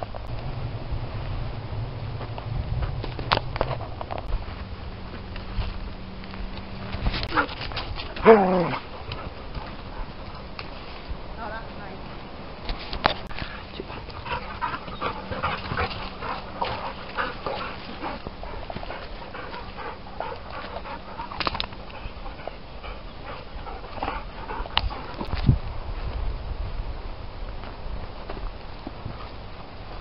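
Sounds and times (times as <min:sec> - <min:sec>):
dogs panting: 0:07.0 - 0:10.9, 0:13.4 - 0:25.4.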